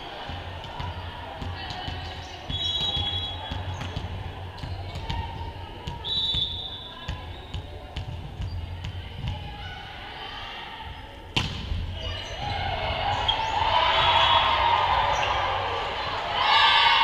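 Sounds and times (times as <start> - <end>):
voices of players and spectators: 0.0 - 17.0
volleyball serve crack: 11.3 - 12.0.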